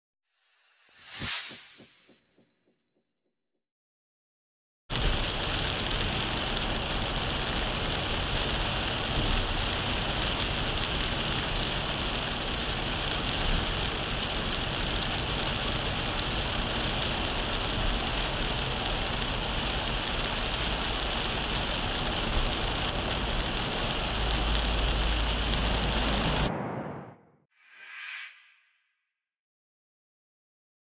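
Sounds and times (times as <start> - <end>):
low rumble: 24.2 - 27.4.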